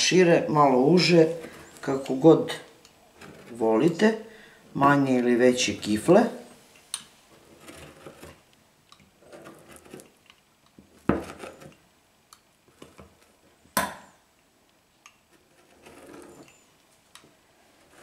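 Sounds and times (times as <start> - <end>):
pastry wheel rolling on dough: 0.7 - 4.2, 7.3 - 8.5, 9.1 - 10.2, 10.8 - 11.8, 15.3 - 16.6, 17.6 - 18.0.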